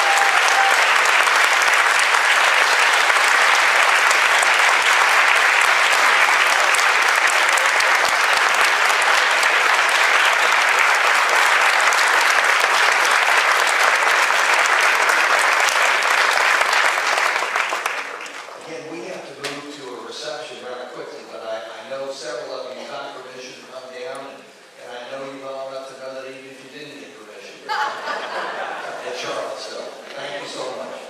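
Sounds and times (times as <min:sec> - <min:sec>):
audience applauding: 0:00.0 - 0:19.4.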